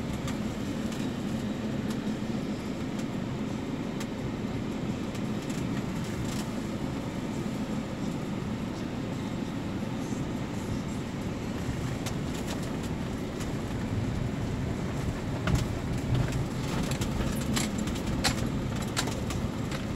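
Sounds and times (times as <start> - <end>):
engine and road rumble: 0.0 - 19.9
light rattles and clicks: 11.6 - 19.9.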